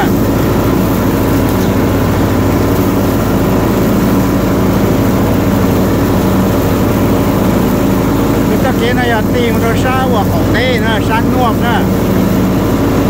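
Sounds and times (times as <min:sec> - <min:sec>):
engine running steadily: 0:00.0 - 0:13.0.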